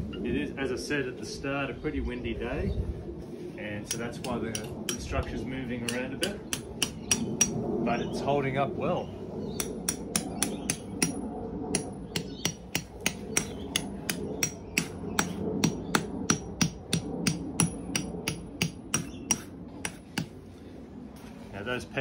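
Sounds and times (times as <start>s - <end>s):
hammer striking metal tent peg: 5.9s - 7.6s, 9.6s - 11.2s, 11.8s - 20.3s.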